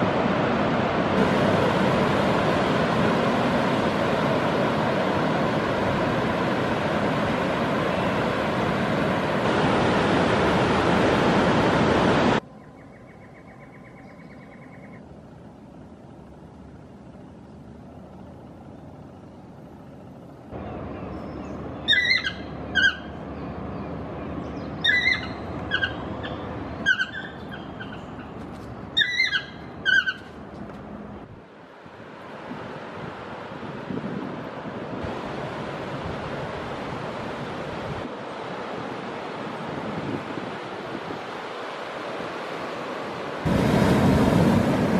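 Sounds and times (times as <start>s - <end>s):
rushing surf: 0.0s - 12.4s, 31.4s - 44.9s
bird short calls: 20.6s - 23.2s, 24.8s - 30.4s.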